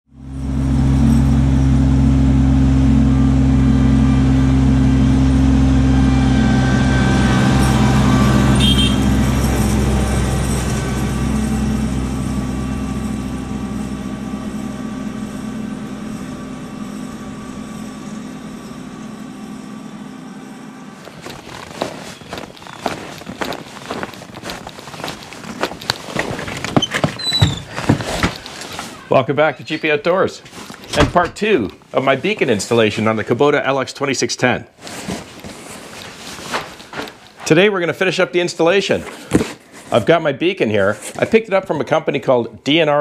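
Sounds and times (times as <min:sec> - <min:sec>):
tractor diesel engine running: 0:00.1 - 0:33.4.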